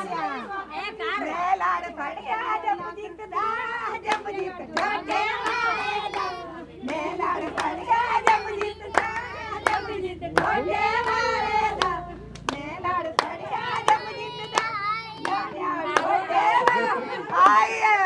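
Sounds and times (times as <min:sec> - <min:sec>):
women singing folk song: 0:00.0 - 0:18.0
hand clapping: 0:04.0 - 0:17.6.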